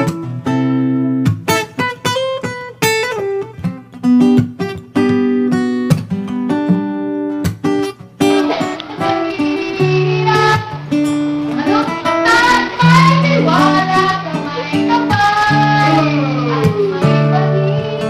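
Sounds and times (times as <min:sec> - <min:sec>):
acoustic guitar picking: 0:00.0 - 0:18.0
bright noisy wash: 0:08.4 - 0:18.0.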